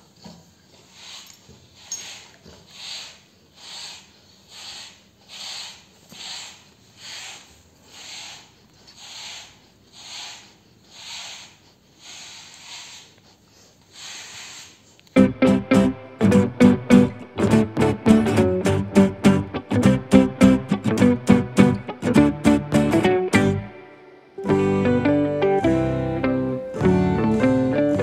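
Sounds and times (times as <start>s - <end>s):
brush scratching through dog coat: 0.0s - 15.0s.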